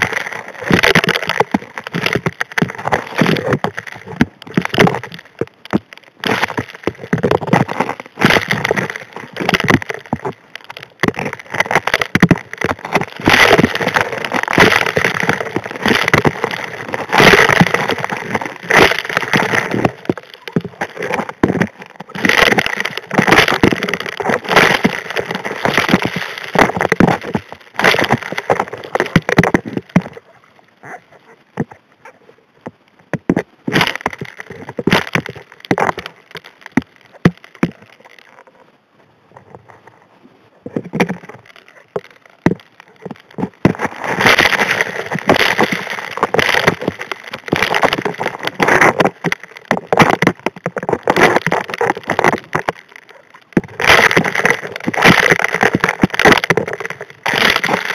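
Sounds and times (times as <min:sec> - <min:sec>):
gravel rattling against metal nozzle underwater: 0:00.0 - 0:38.6, 0:39.3 - 0:57.9.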